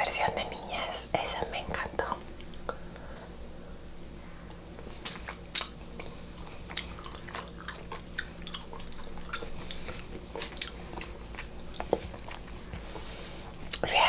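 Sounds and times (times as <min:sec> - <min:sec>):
crisp fruit bite snaps: 0:04.5 - 0:12.9
chewing: 0:04.8 - 0:13.9.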